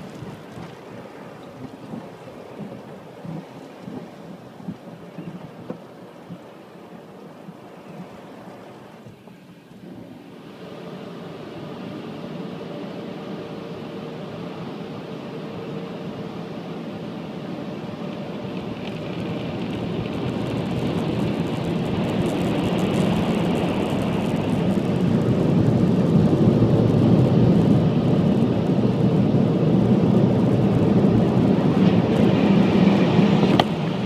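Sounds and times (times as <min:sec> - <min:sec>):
car wash machinery rushing: 0:00.0 - 0:34.0.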